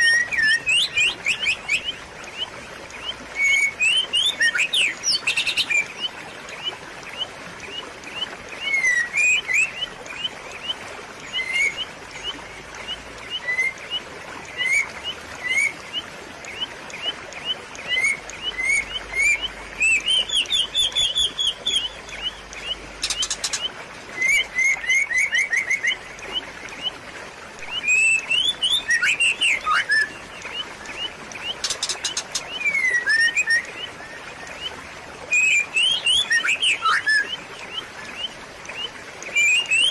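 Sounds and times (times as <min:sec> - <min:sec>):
small birds chirping: 0:00.0 - 0:39.9
trickling water: 0:00.0 - 0:39.9.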